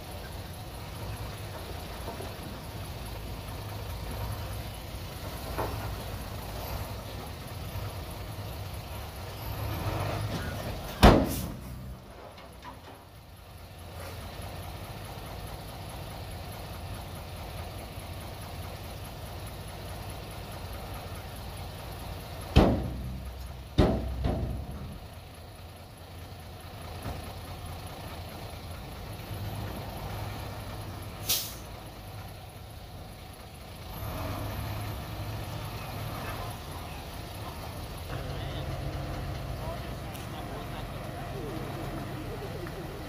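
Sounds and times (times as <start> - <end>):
diesel truck engine running: 0.0 - 43.0
heavy metal bangs: 22.5 - 25.0
air hiss: 31.2 - 31.7.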